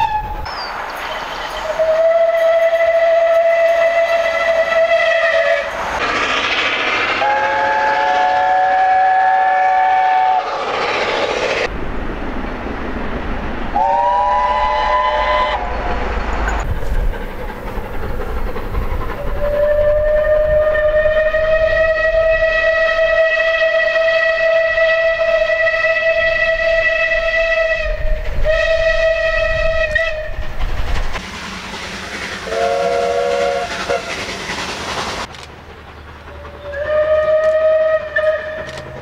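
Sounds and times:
steam locomotive whistle: 0.0s - 0.7s, 1.6s - 5.8s, 7.1s - 10.6s, 13.8s - 15.7s, 19.2s - 30.5s, 32.3s - 34.3s, 36.3s - 39.0s
low rumble of running train: 0.0s - 39.0s.

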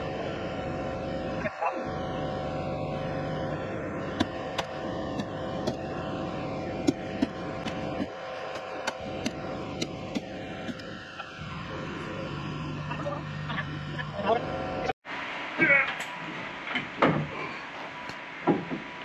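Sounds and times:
telehandler engine running: 0.0s - 15.0s
sharp knocks: 18.4s - 18.9s.

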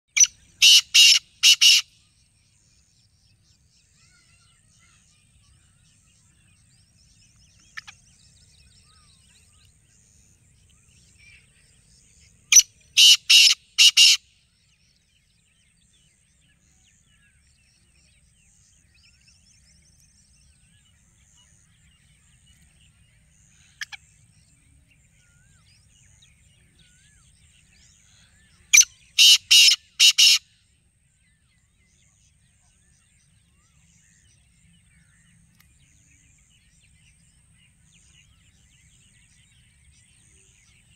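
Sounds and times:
faint bird chirping: 0.1s - 40.9s
francolin harsh call: 0.2s - 1.9s, 12.5s - 14.2s, 28.7s - 30.4s.

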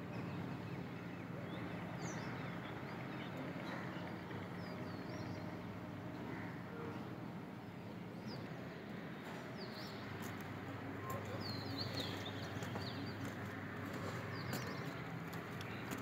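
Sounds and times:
small birds chirping: 8.2s - 16.0s.

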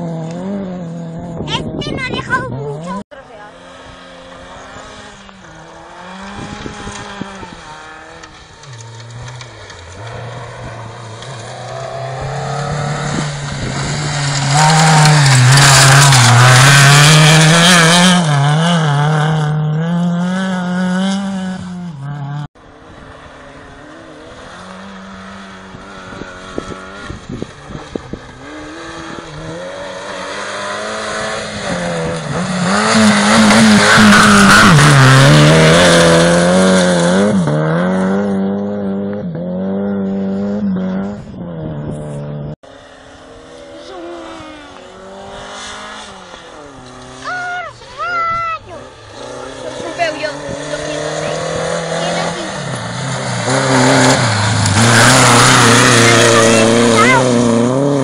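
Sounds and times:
rally car engines revving: 0.0s - 58.0s.

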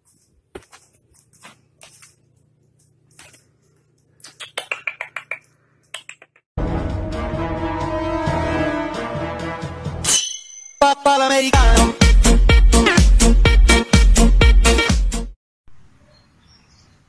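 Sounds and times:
loud music: 6.6s - 10.1s, 10.8s - 15.3s.

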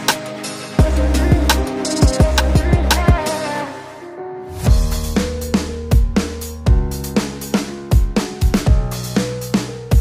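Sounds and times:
fast heavy beat music: 0.0s - 3.6s, 4.6s - 10.0s
sustained low bass: 4.6s - 6.9s
deep kick drums: 4.7s - 7.0s.

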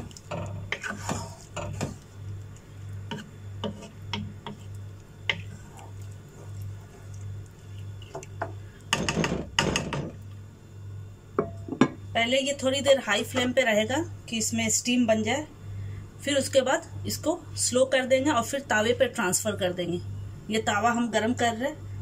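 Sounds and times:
wooden spoon scraping pot: 0.0s - 2.3s, 2.9s - 9.4s
low pulsing hum: 0.0s - 16.0s.

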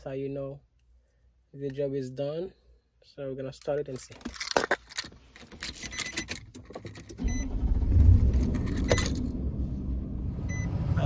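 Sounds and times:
keys jangling: 3.9s - 7.2s, 8.4s - 9.3s
car engine starting and idling: 5.9s - 11.0s
short beep: 7.2s - 7.6s, 10.4s - 10.8s.

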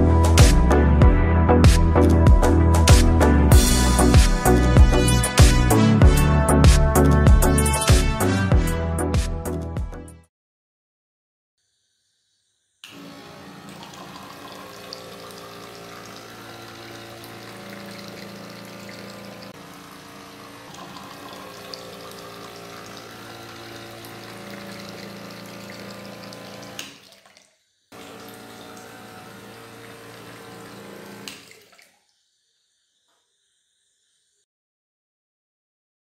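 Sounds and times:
water splashing into a glass: 20.7s - 32.1s.

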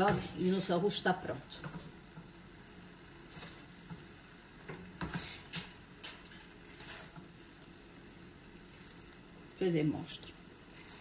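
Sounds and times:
spatula scraping in pan: 1.6s - 9.4s, 10.6s - 11.0s.

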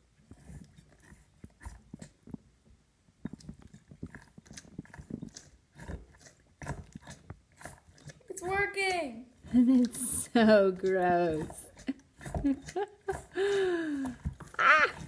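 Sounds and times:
wet squishing and gurgling: 3.2s - 8.4s, 9.4s - 15.0s.

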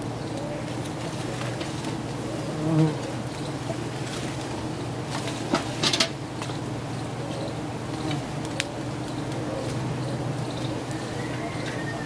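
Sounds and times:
bees buzzing: 0.0s - 12.0s.

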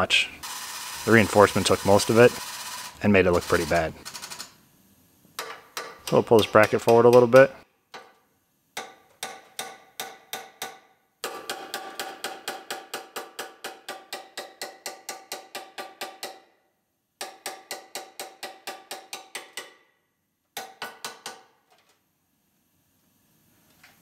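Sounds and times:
hammer striking metal: 5.4s - 8.2s, 8.8s - 16.5s, 17.2s - 19.8s, 20.6s - 21.5s.

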